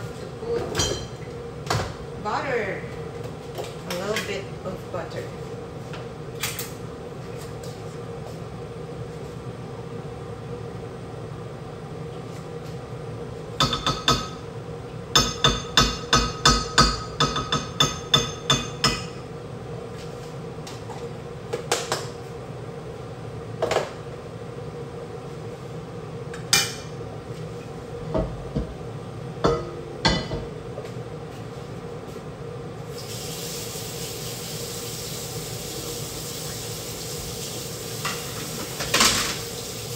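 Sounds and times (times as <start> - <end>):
steady hum: 0.0 - 39.9
metal spoon knocking on a pan: 13.6 - 14.4, 15.2 - 19.2
butter sizzling: 32.9 - 39.9.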